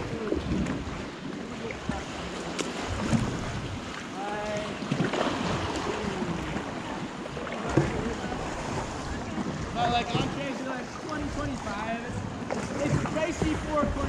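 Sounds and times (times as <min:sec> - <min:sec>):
water lapping around kayak: 0:00.0 - 0:14.0
wind buffeting microphone: 0:11.1 - 0:14.0.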